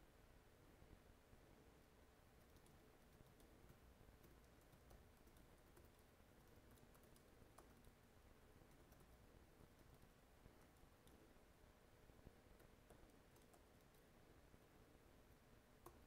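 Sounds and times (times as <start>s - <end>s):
typing on computer keyboard: 2.4s - 8.0s, 8.7s - 11.2s, 12.6s - 14.1s.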